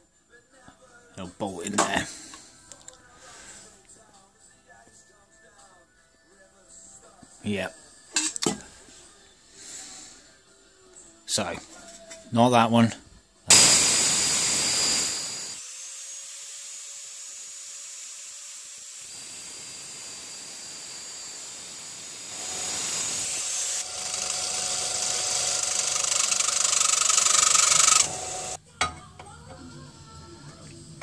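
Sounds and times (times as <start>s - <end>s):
angle grinder cutting metal: 13.5s - 28.6s
disc sander grinding: 13.5s - 28.6s.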